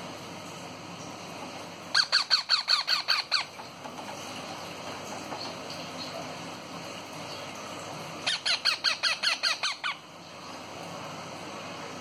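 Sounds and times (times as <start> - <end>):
parakeet squawks: 1.9 - 3.7, 8.2 - 10.1.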